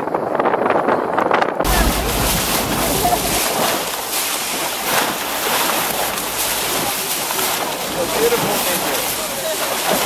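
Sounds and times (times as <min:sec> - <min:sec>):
wind buffeting microphone: 0:00.0 - 0:10.0
rushing water of bow wave: 0:01.6 - 0:10.0.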